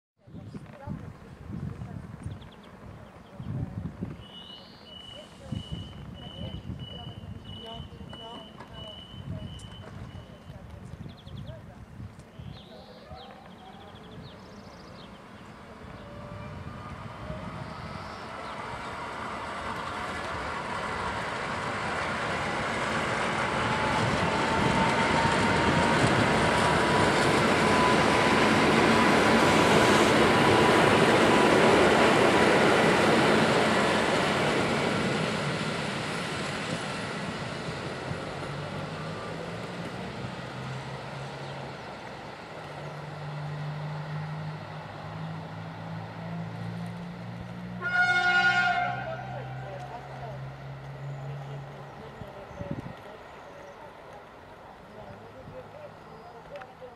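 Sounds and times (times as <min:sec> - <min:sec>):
train wheels rumbling on rails: 0:00.3 - 0:12.3, 0:13.3 - 0:56.9
electric train whine: 0:14.9 - 0:56.8.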